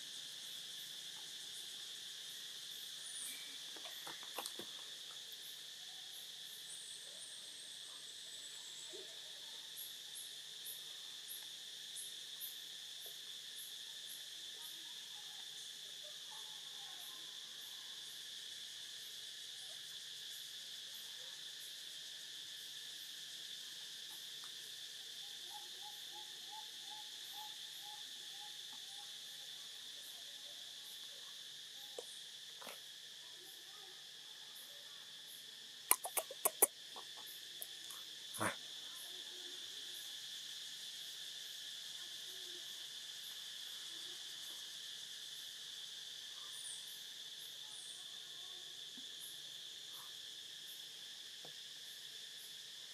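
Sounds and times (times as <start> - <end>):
insect chorus drone: 0.0 - 52.9
sharp clicks: 35.9 - 36.7.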